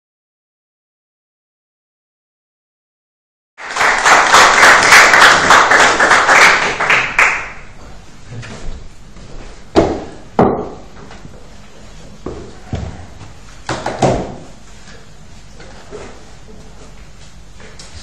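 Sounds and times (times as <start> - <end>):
audience applause: 3.6 - 7.6.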